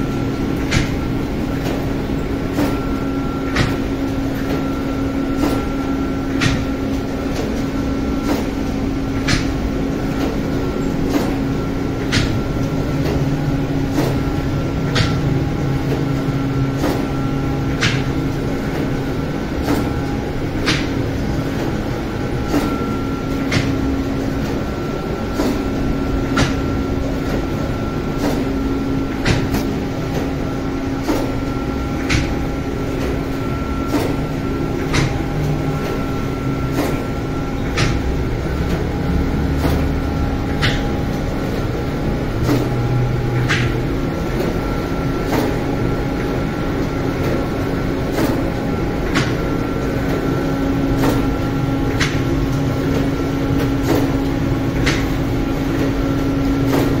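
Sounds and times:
machine hum with tones: 0:00.0 - 0:57.0
sharp mechanical click: 0:02.5 - 0:02.8, 0:08.2 - 0:08.6, 0:11.1 - 0:11.4, 0:28.1 - 0:28.5, 0:34.9 - 0:35.2, 0:42.4 - 0:43.8.

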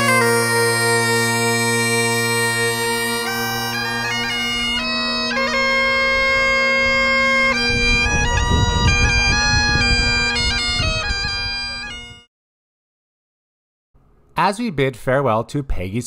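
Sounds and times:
bagpipes playing: 0:00.0 - 0:12.3
wind buffeting microphone: 0:04.1 - 0:12.2.

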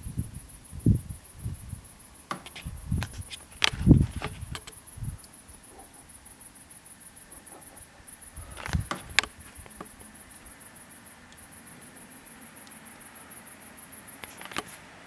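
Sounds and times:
night insects trilling: 0:00.0 - 0:15.0.

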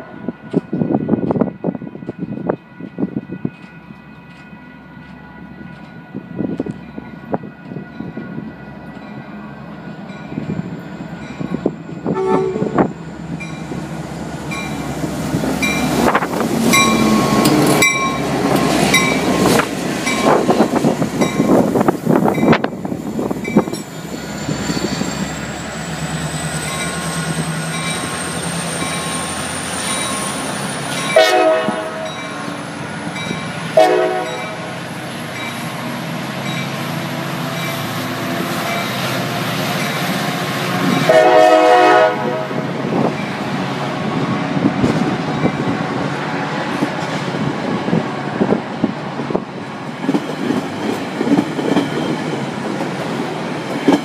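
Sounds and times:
train cars rumbling past: 0:00.0 - 0:54.0
train horn: 0:12.0 - 0:12.9, 0:31.2 - 0:32.3, 0:33.8 - 0:34.7, 0:40.8 - 0:42.8
wheels clacking over rail joints: 0:49.8 - 0:54.0.

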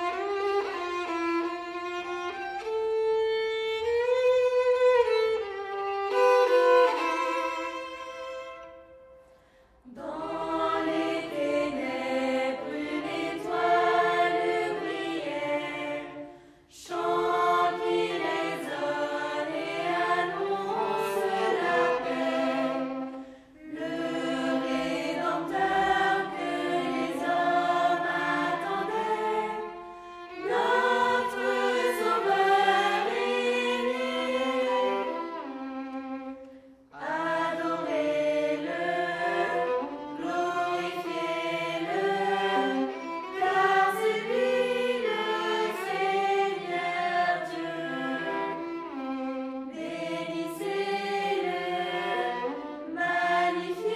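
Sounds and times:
violin accompaniment: 0:00.0 - 0:53.9
young choir singing: 0:09.8 - 0:35.7, 0:36.9 - 0:53.9.

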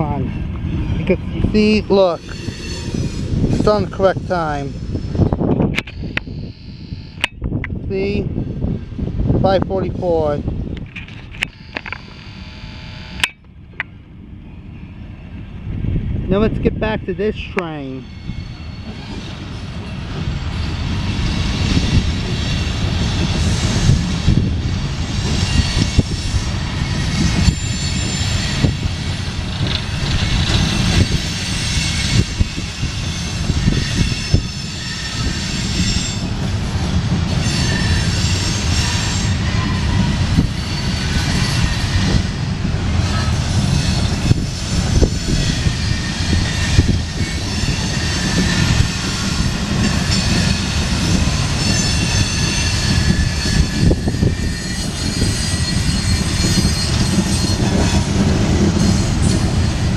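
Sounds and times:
wheel flanges squealing: 0:17.9 - 0:20.7, 0:25.0 - 0:42.4, 0:43.0 - 0:59.9
train wheels clattering on rails: 0:18.0 - 0:59.9.

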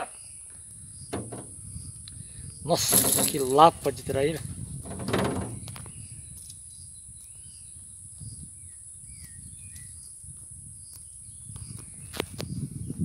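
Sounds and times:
bird chirps: 0:00.0 - 0:02.7, 0:05.6 - 0:10.2.

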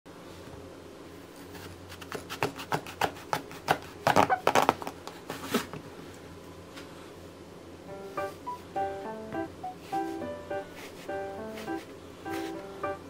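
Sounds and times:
low steady hum: 0:03.8 - 0:13.0.

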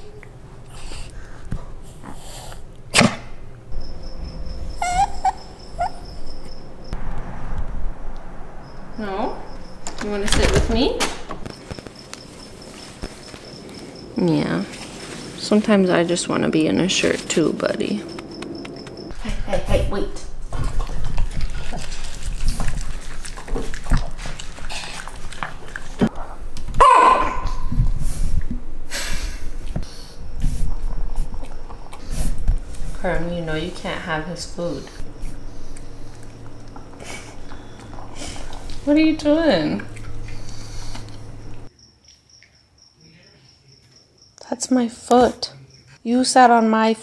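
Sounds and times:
dog whimpering: 0:04.1 - 0:06.7
dog chewing and lapping: 0:20.4 - 0:26.4, 0:34.8 - 0:41.6.

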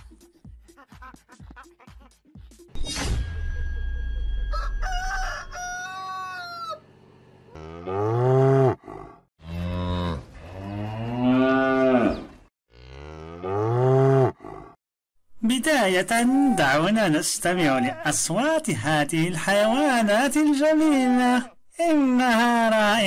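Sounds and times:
rooster crowing: 0:04.4 - 0:06.9
cow mooing: 0:07.5 - 0:14.8.

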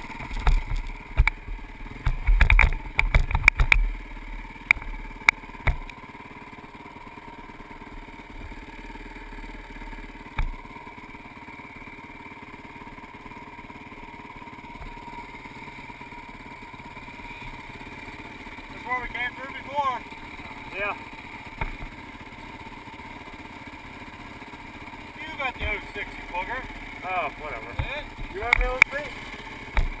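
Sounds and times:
knocks and clatter over rough ground: 0:00.0 - 0:06.0, 0:10.2 - 0:10.8, 0:14.6 - 0:30.0
dirt bike engine idling: 0:00.0 - 0:30.0.

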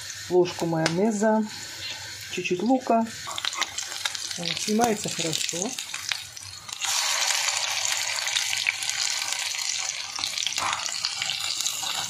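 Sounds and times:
patties sizzling in oil: 0:00.0 - 0:12.0.

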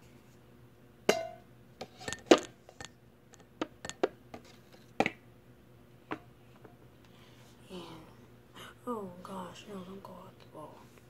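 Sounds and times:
small objects clicking and tapping: 0:02.1 - 0:04.4.

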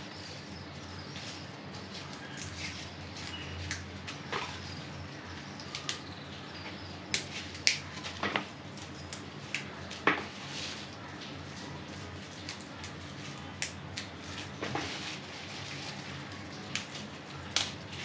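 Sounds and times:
leaves snapping off stems: 0:02.1 - 0:04.6, 0:05.6 - 0:06.1, 0:07.1 - 0:10.3, 0:12.1 - 0:15.8, 0:16.4 - 0:18.0.

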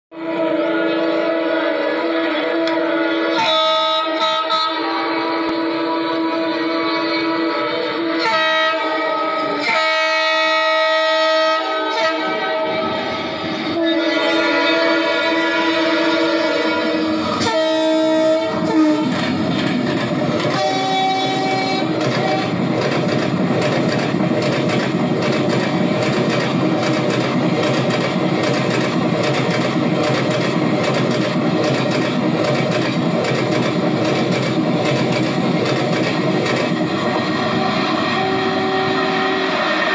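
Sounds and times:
locomotive horn blowing: 0:00.1 - 0:19.4, 0:20.4 - 0:22.7, 0:36.6 - 0:39.9
train coaches rumbling on rails: 0:00.2 - 0:39.9.

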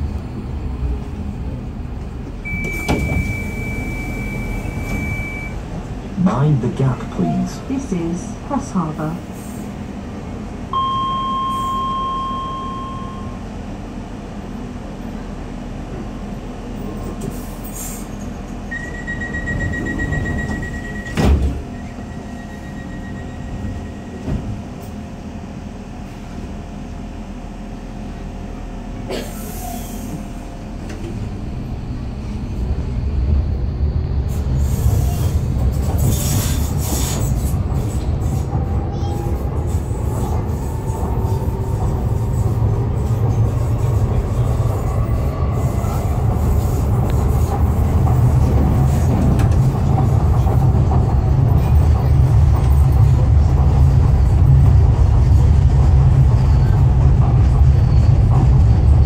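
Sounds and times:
train rumble and motor whine: 0:00.0 - 0:59.0
short beep: 0:02.4 - 0:05.6, 0:10.8 - 0:13.4, 0:18.7 - 0:21.2.

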